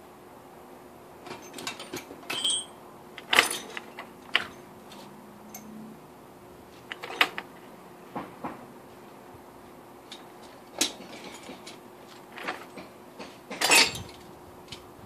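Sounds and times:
metal tools clinking and clanking: 0:01.2 - 0:05.8, 0:06.9 - 0:07.6, 0:10.1 - 0:14.8.

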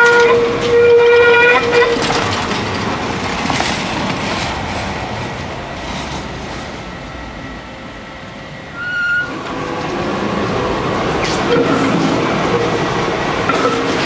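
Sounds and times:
tram rolling on rails: 0:00.0 - 0:14.0.

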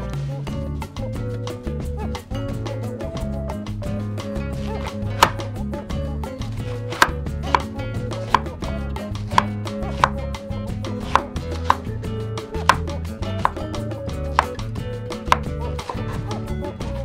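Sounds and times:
background music: 0:00.0 - 0:17.0
knife chopping on wooden board: 0:04.7 - 0:05.5, 0:06.7 - 0:08.6, 0:09.3 - 0:10.2, 0:11.0 - 0:11.9, 0:12.6 - 0:13.7, 0:14.3 - 0:16.1.

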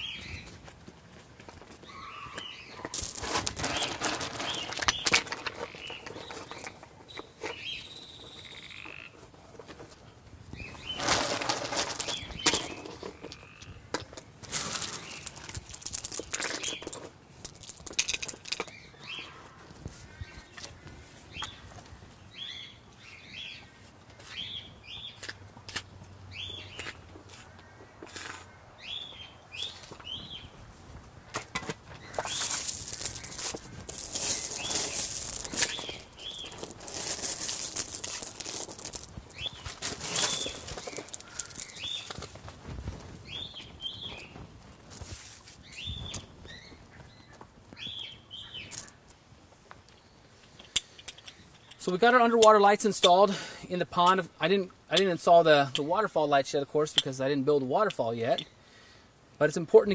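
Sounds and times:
gravel rattling: 0:00.2 - 0:19.3, 0:31.4 - 0:49.0
rocks clacking and scraping: 0:01.4 - 0:19.3, 0:31.3 - 0:46.3, 0:48.6 - 0:49.0.

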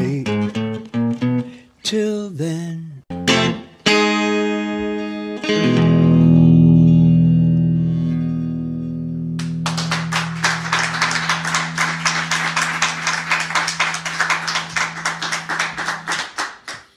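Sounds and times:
guitar chord ringing: 0:03.1 - 0:15.6.

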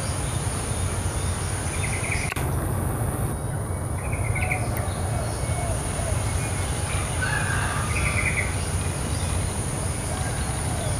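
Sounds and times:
small bird chirping: 0:00.0 - 0:09.4
steady high-pitched whine: 0:00.0 - 0:10.9
sharp click: 0:02.2 - 0:02.6
low rumble: 0:02.3 - 0:05.0.

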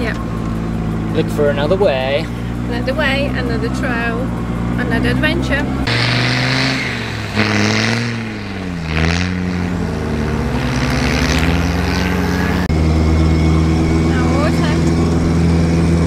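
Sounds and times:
engine labouring in sand: 0:00.0 - 0:16.0
engine drone inside cabin: 0:12.4 - 0:16.0.

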